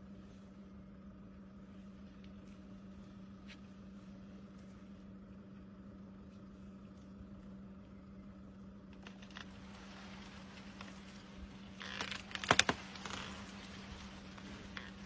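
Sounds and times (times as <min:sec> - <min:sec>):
steady low hum: 0:00.0 - 0:15.0
branches rustling: 0:06.2 - 0:15.0
branches cracking: 0:08.9 - 0:15.0.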